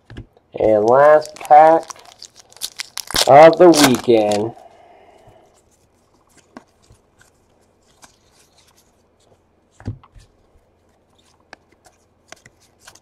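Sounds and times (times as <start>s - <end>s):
trading cards clicking and rustling: 0.6s - 4.5s, 11.2s - 13.0s.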